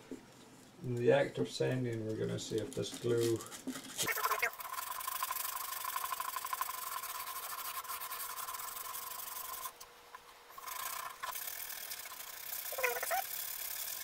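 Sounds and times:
sandpaper rubbing wood: 0:05.6 - 0:09.7.

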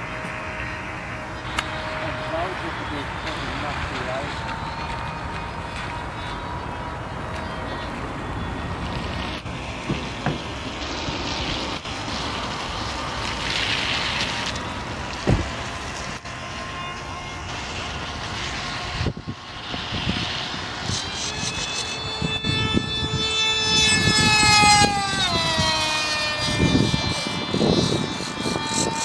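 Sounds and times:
electric motor whining: 0:00.0 - 0:29.0
wind buffeting microphone: 0:17.7 - 0:29.0.

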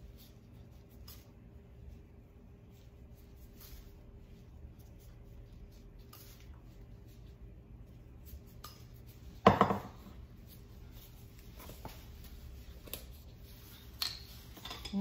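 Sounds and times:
ceramic bowl clattering on wood: 0:09.4 - 0:10.0.

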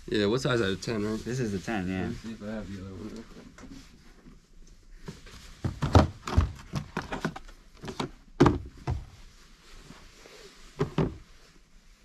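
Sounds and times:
thumps of things being moved: 0:05.0 - 0:09.2, 0:10.8 - 0:11.3.

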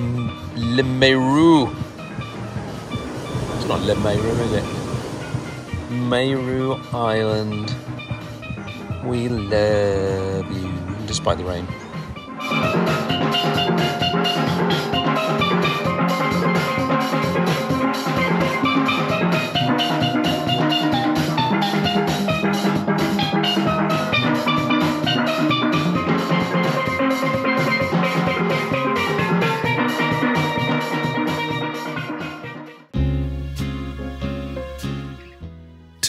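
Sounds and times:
steel pans playing lively tune: 0:00.0 - 0:32.6
drums keeping steady beat: 0:12.0 - 0:31.5.

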